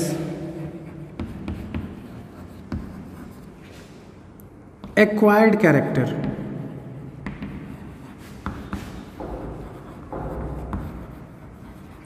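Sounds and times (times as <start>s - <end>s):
chalk scratching on chalkboard: 0.2s - 4.0s, 6.2s - 12.0s.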